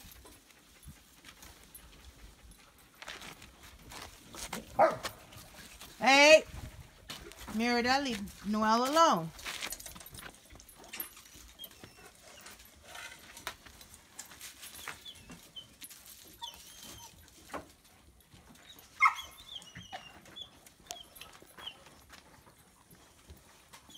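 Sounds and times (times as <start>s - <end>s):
dogs rustling on dirt: 0.0s - 23.9s
dog yipping: 4.8s - 5.2s, 14.8s - 17.3s, 18.7s - 22.0s.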